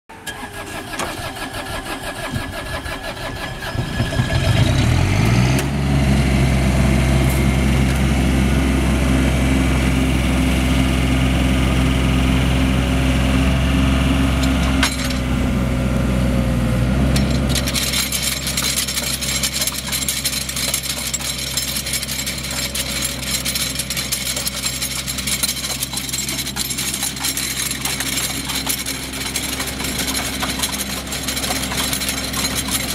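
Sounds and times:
loader engine revving: 0.2 - 32.9
rattling hiss of rotary tiller: 17.6 - 32.9.

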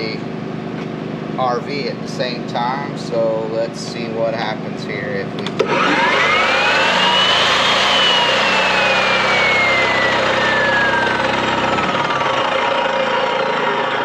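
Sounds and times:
low engine drone: 0.0 - 14.0
chop saw motor whining: 5.4 - 14.0.

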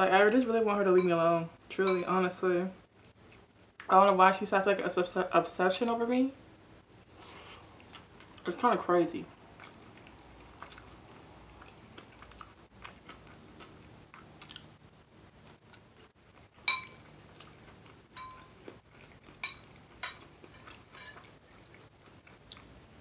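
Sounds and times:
chewing noodles: 7.4 - 8.5, 9.4 - 23.0
utensil clinking against dish: 16.7 - 17.0, 18.2 - 18.5, 19.4 - 21.3.

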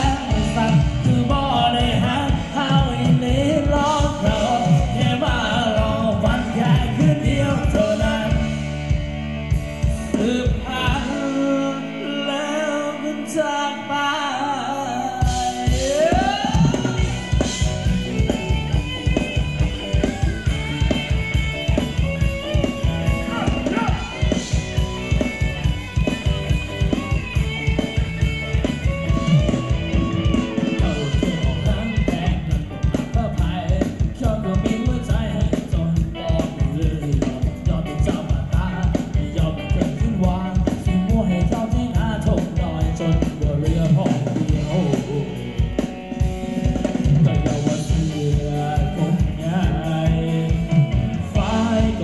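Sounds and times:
person singing: 0.0 - 8.7, 10.0 - 19.2, 29.1 - 45.8, 46.6 - 52.0
dance band music: 0.0 - 12.2, 15.2 - 52.0
held keyboard chords: 0.0 - 52.0
drum beat: 15.7 - 52.0.

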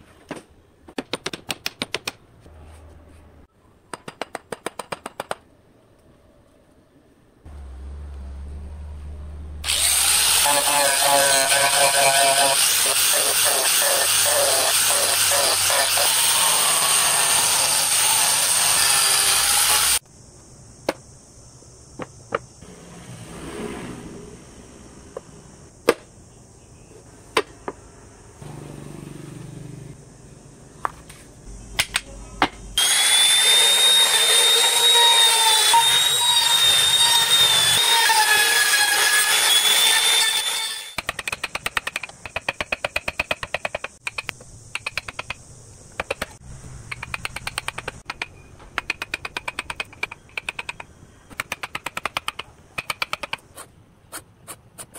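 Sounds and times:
angle grinder sanding wood: 9.6 - 20.0, 32.8 - 40.9
power tool whining: 9.6 - 20.0, 32.8 - 41.0.

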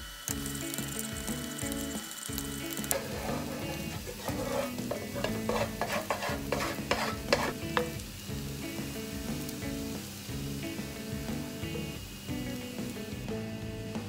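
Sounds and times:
onion sizzling: 0.0 - 14.0
background music: 0.3 - 14.0
spatula scraping frying pan: 2.7 - 8.0.

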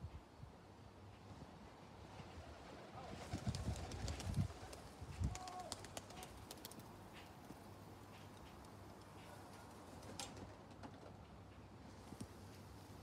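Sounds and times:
pigeons flapping wings: 2.5 - 7.6, 8.3 - 11.2
clicks and clatter on tiled roof: 8.2 - 11.6.

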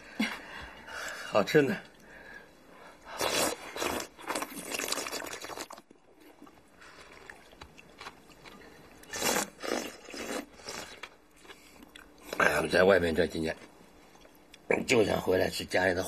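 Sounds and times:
people slurping noodles: 3.1 - 7.6, 8.5 - 11.1.

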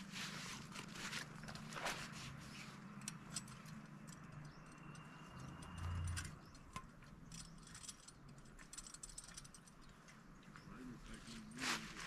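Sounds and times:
light clicks and metallic rattles: 0.8 - 11.5
low hum: 3.0 - 9.6.

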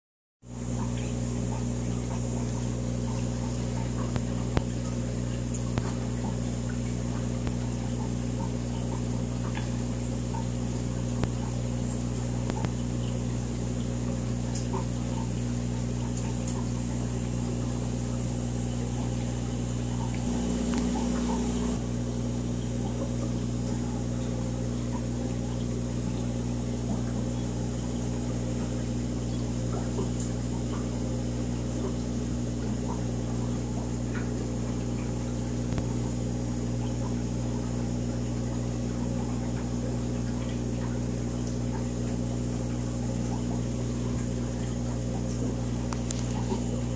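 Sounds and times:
aquarium equipment humming: 0.4 - 46.9
water bubbling: 0.6 - 46.9.

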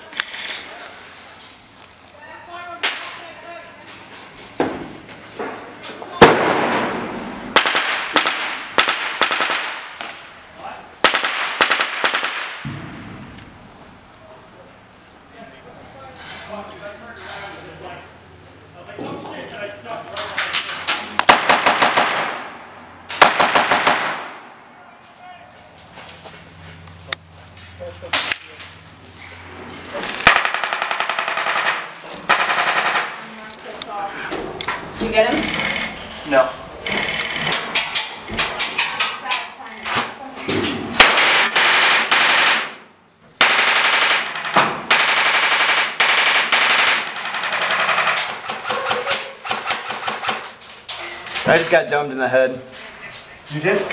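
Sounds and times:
airsoft rifle shots: 6.2 - 10.2, 11.0 - 13.2, 21.2 - 22.5, 23.1 - 24.5, 30.2 - 33.2, 40.9 - 42.8, 43.4 - 50.5.

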